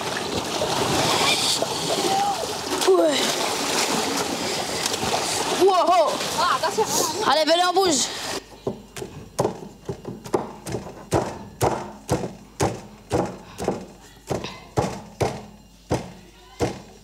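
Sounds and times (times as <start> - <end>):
pestle pounding on tabletop: 8.7 - 16.9.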